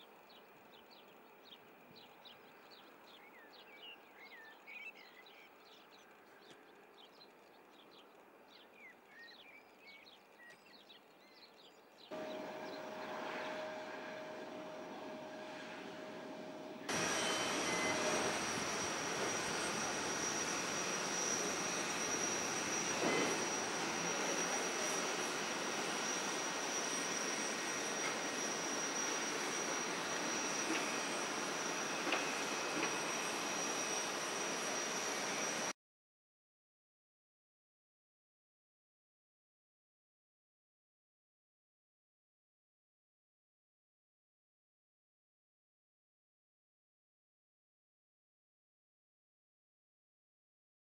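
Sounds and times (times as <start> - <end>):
small birds chirping: 0.0 - 14.8
jet airliner engine whine: 12.1 - 35.8.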